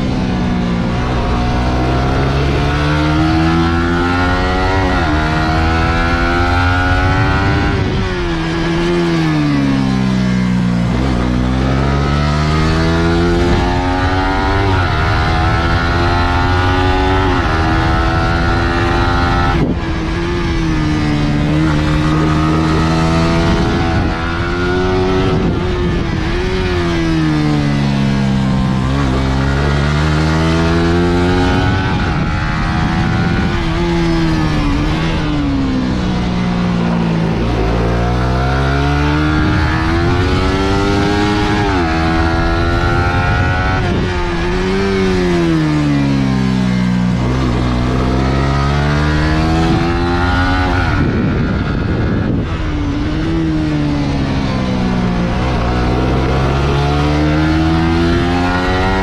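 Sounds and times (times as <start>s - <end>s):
motorcycle engine revving: 0.0s - 59.0s
low rushing noise: 17.4s - 58.8s.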